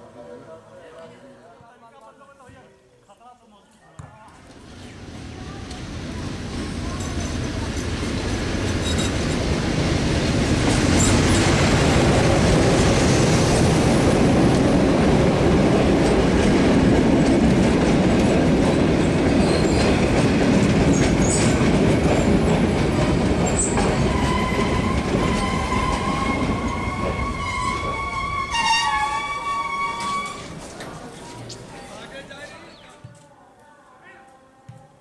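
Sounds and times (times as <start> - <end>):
diesel locomotive passing: 4.5 - 31.8
high-pitched brake squeal: 8.8 - 9.2, 23.6 - 30.6
train wheels clattering over rail joints: 15.8 - 30.9.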